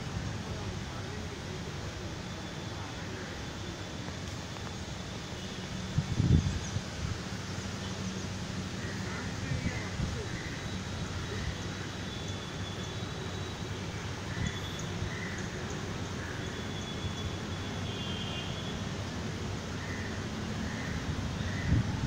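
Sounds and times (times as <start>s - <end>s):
river rushing: 0.0s - 22.0s.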